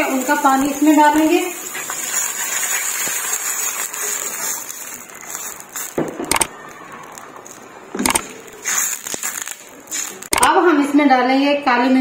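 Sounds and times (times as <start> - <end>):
stock hissing in hot pan: 0.0 - 6.0, 8.6 - 10.3.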